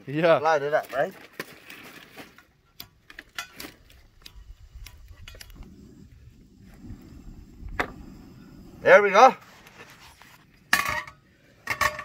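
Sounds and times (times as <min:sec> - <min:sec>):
camp stove igniter clicks: 0:04.1 - 0:05.7
gas burner low rush: 0:04.1 - 0:10.7.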